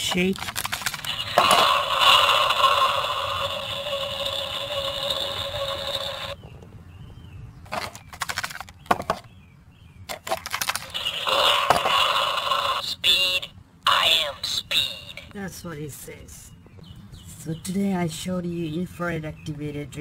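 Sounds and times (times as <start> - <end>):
toy car clicks and clatters: 0.0 - 6.4, 7.7 - 9.0, 10.1 - 12.3
toy car electronic engine revving: 0.5 - 6.4, 10.5 - 12.8.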